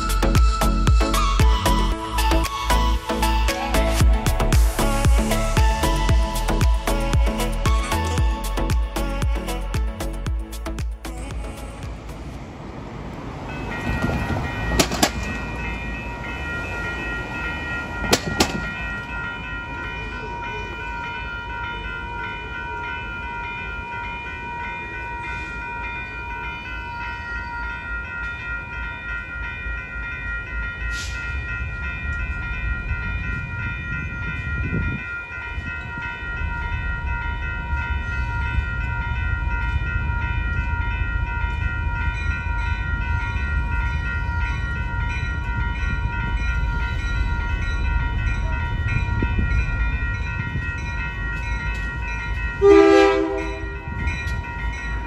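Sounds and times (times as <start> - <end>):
diesel locomotive engine rumble: 0.0 - 55.0
level crossing warning bell: 13.3 - 55.0.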